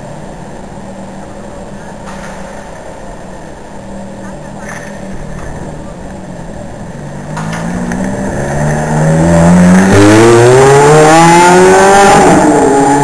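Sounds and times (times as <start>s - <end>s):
sports car engine accelerating: 6.1s - 13.0s.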